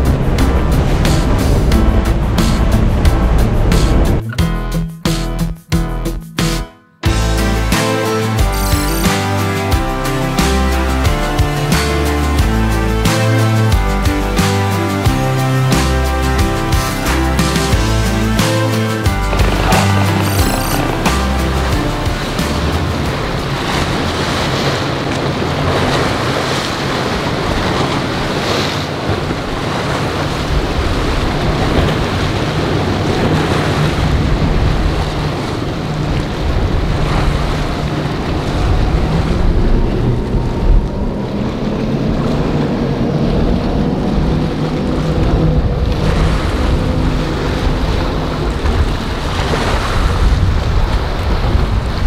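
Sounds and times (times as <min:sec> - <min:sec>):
rush of spray and surf: 0:00.0 - 0:04.2, 0:07.3 - 0:52.0
boat engines droning: 0:07.1 - 0:52.0
wind buffeting microphone: 0:19.1 - 0:52.0.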